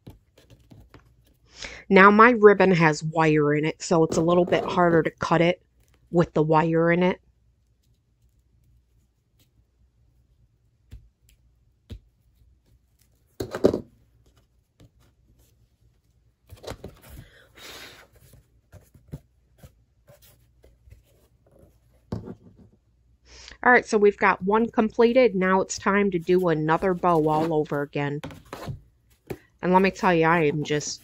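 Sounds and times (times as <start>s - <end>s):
ribbon and board rustling: 25.0s - 31.0s.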